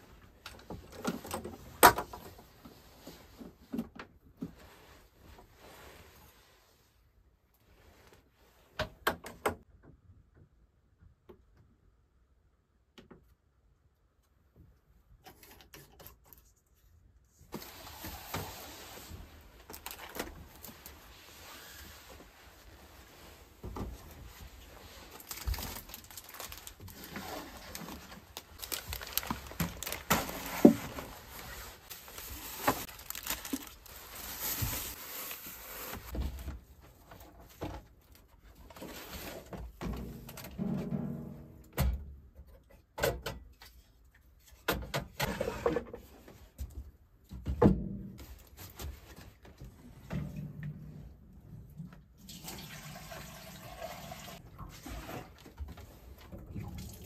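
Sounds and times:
objects being handled: 0:17.4 - 0:36.4.

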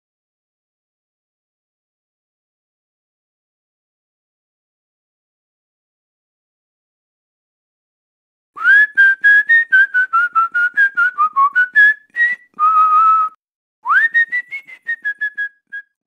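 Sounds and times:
person whistling: 0:08.6 - 0:16.0.

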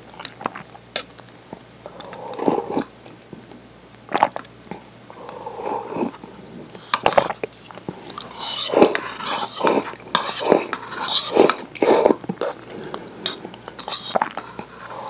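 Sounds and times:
soup slurping and swallowing: 0:01.8 - 0:02.9, 0:08.1 - 0:15.0.

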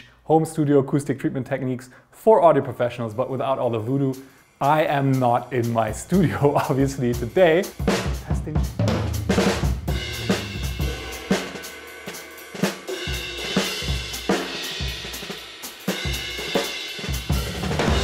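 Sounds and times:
drum kit beat: 0:03.8 - 0:18.0
deep bass line: 0:07.8 - 0:11.5.

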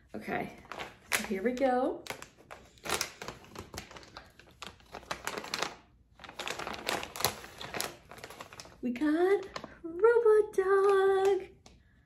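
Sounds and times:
plastic bag crinkling as torn open: 0:00.6 - 0:08.8.

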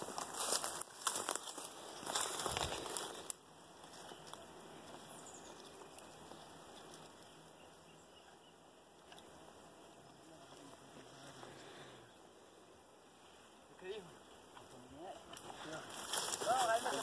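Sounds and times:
leaves crackling underfoot: 0:00.0 - 0:07.7, 0:14.5 - 0:17.0.

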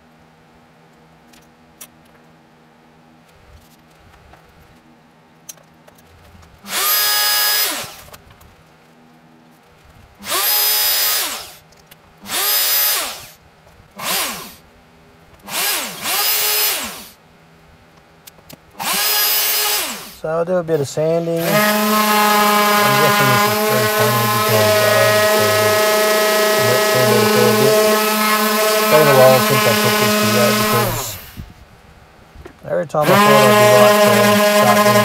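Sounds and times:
router motor whining: 0:06.6 - 0:08.2, 0:10.2 - 0:11.6, 0:12.2 - 0:13.4, 0:14.0 - 0:14.6, 0:15.4 - 0:17.2, 0:18.8 - 0:20.2, 0:21.1 - 0:31.4, 0:33.0 - 0:35.0.

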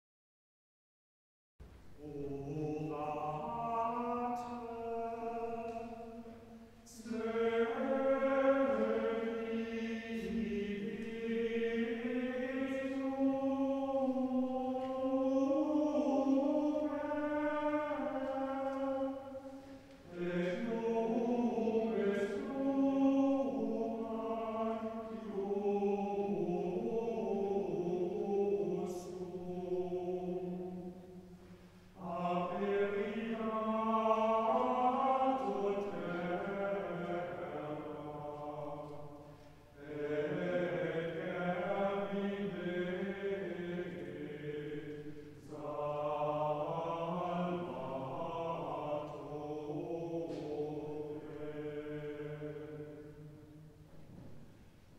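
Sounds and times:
choir singing a slow chant: 0:01.9 - 0:54.9.

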